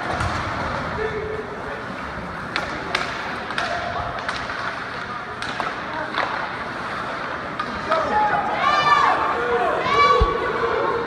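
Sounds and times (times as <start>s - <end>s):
hockey sticks and puck clacking: 1.8s - 8.8s.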